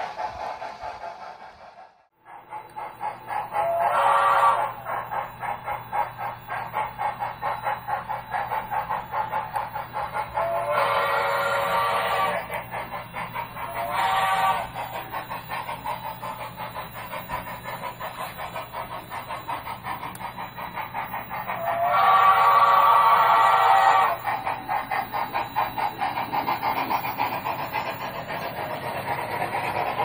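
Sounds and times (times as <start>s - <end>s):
model steam locomotive chuffing: 0.0s - 30.0s
locomotive whistle blasts: 3.6s - 4.8s, 10.3s - 12.5s, 13.7s - 14.8s, 21.6s - 24.3s.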